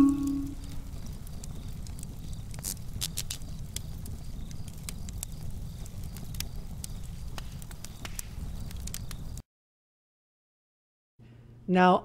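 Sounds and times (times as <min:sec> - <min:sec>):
low rumble of flames: 0:00.0 - 0:09.4
burning wood popping and snapping: 0:00.2 - 0:09.4.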